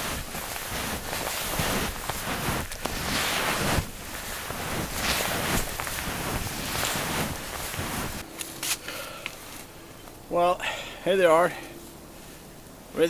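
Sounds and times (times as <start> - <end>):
wind buffeting microphone: 0.0 - 8.2
snowshoe footsteps in snow: 0.0 - 8.8.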